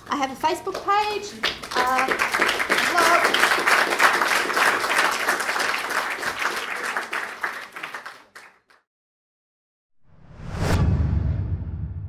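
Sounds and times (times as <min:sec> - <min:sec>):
audience applauding: 0:00.7 - 0:08.8.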